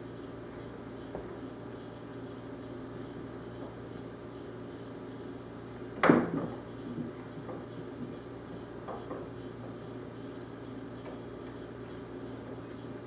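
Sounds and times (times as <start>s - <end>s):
steady low hum: 0.0s - 13.0s
foosball table clunks: 6.0s - 6.6s.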